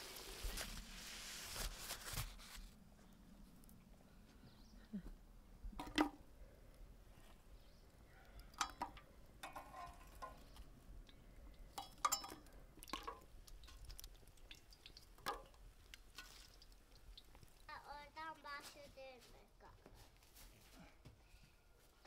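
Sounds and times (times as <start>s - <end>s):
tongs clinking in a firebox: 8.2s - 17.6s.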